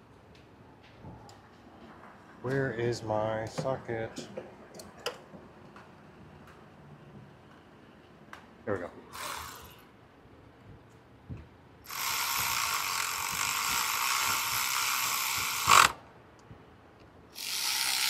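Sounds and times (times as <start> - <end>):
ratchet wrench ratcheting: 9.1 - 9.8, 11.9 - 16.0, 17.4 - 18.0.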